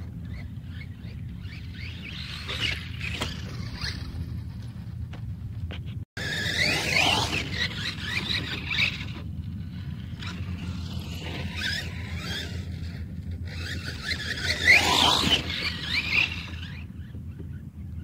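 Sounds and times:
electric motor whining: 0:00.0 - 0:05.0, 0:06.2 - 0:17.6
tyres spinning in dirt: 0:06.2 - 0:17.1.

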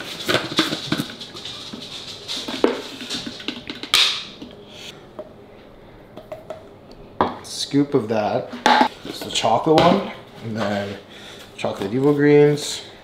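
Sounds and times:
plastic scoop tapping and rustling: 0:00.0 - 0:04.1.

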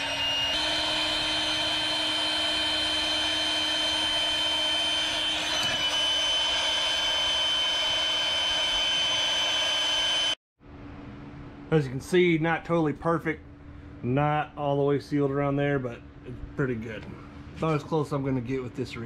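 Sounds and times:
electric inflator pump whining: 0:00.0 - 0:10.4.

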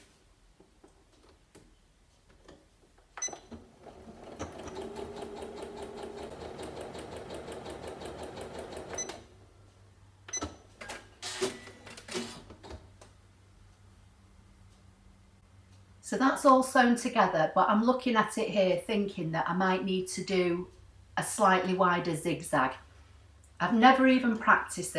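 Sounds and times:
sewing machine stitching: 0:03.2 - 0:09.2.

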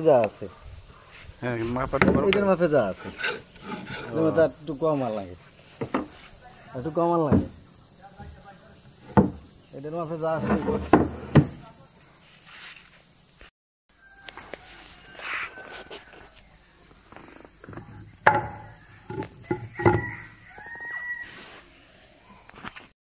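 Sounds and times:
high-pitched insect chorus: 0:00.0 - 0:22.9
sharp knocks: 0:02.0 - 0:02.5, 0:07.3 - 0:07.6, 0:09.0 - 0:09.5, 0:18.2 - 0:20.2.

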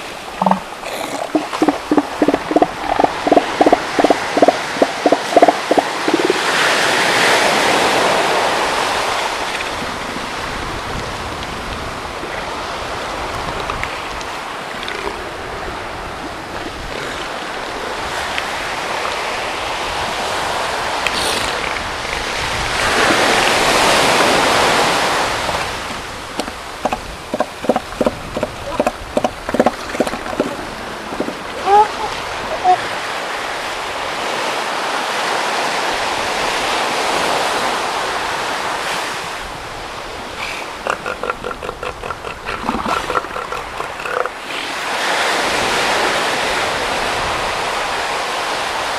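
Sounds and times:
surf washing on beach: 0:00.0 - 0:48.9
elephant seal pulsed call: 0:00.4 - 0:06.5.

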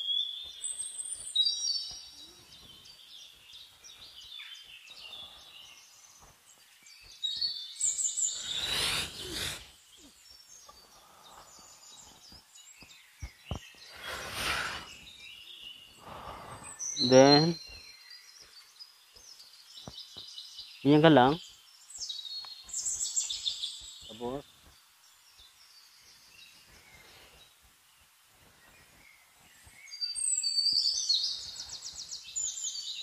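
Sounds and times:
birds chirping: 0:00.0 - 0:33.0
long rushing sounds: 0:08.3 - 0:09.7, 0:13.9 - 0:15.0.

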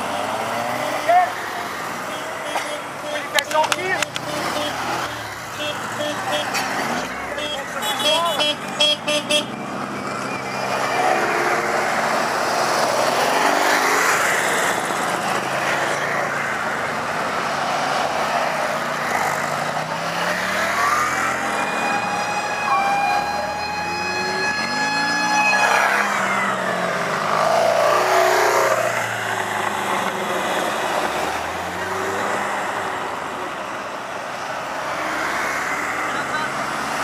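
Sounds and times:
motorcycle trike engines revving: 0:00.0 - 0:37.0
siren-like tone: 0:20.6 - 0:28.1.

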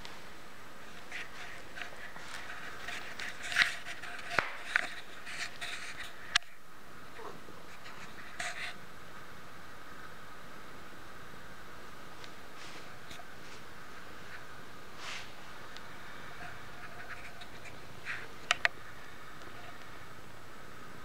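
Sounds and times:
kittens rustling in bedding: 0:00.0 - 0:06.3, 0:12.2 - 0:18.4.

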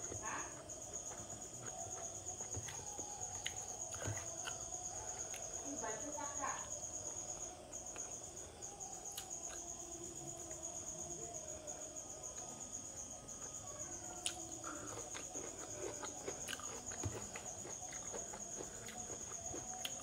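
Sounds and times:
crickets trilling: 0:00.0 - 0:20.0
person chewing: 0:00.9 - 0:04.7, 0:14.2 - 0:20.0.

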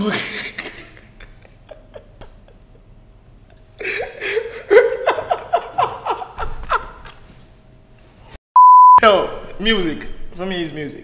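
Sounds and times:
people laughing: 0:00.1 - 0:02.9, 0:03.8 - 0:07.4.

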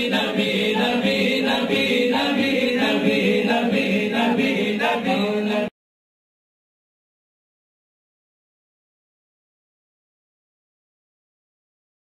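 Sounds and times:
voices singing devotional song: 0:00.0 - 0:05.7.

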